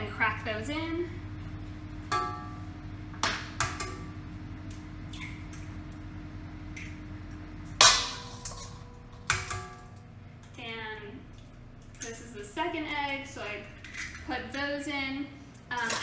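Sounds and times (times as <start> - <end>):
eggs cracked against bowl: 13.8 - 14.3.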